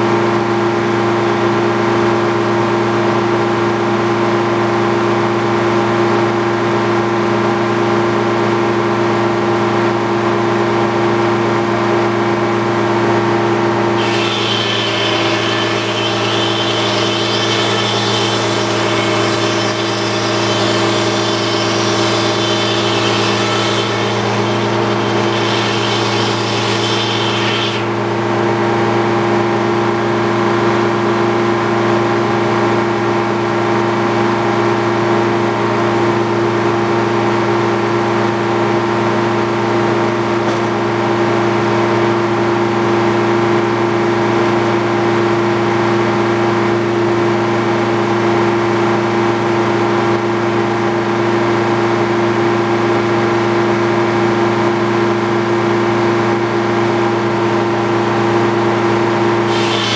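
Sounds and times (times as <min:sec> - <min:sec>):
sawmill humming: 0:13.0 - 0:31.7, 0:47.8 - 0:59.9
saw blade whining in wood: 0:13.8 - 0:29.3, 0:58.0 - 0:59.9.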